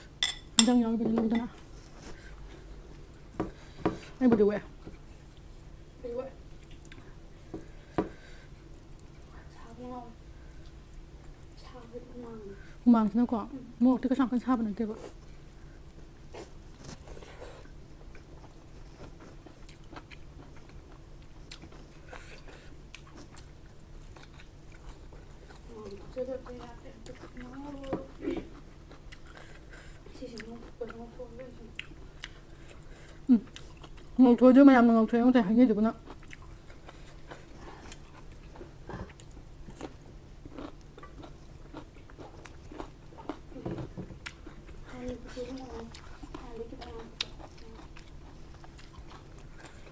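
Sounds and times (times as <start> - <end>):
person chewing food: 6.5 - 9.4, 10.4 - 11.5, 15.0 - 31.1, 31.7 - 34.2, 36.0 - 49.9.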